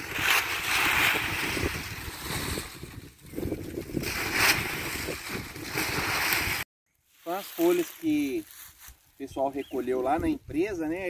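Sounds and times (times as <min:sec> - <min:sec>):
wind buffeting microphone: 0:00.0 - 0:06.6
dry leaves rustling: 0:00.0 - 0:09.2.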